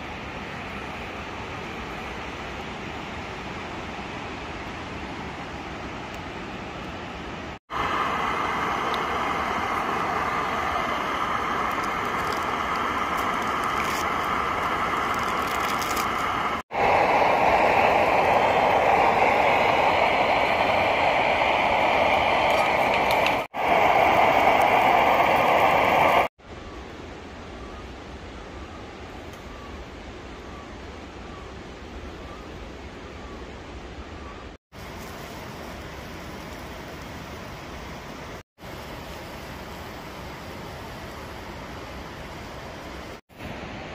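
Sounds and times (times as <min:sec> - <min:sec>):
rushing forest noise: 0:00.0 - 0:43.9
gas stove burner hissing: 0:07.7 - 0:26.3.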